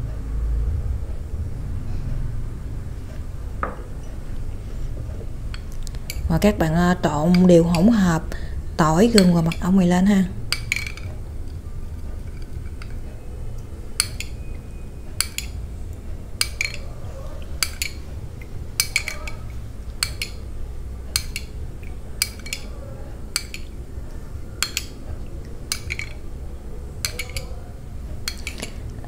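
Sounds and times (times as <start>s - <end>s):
low hum: 0.0s - 29.0s
spoon clinking against glass bowl: 14.0s - 14.6s, 15.2s - 15.6s, 16.4s - 18.0s, 18.8s - 20.4s, 21.1s - 23.8s, 24.6s - 25.0s, 25.7s - 26.2s, 27.0s - 27.6s, 28.2s - 28.8s.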